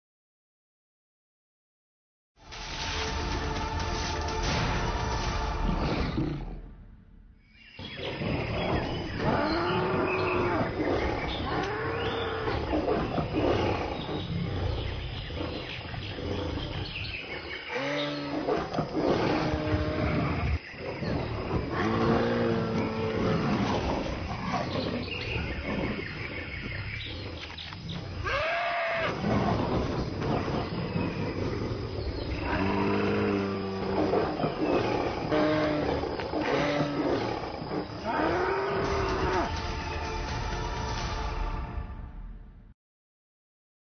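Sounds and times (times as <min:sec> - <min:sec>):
lion growling: 0:07.8 - 0:39.6.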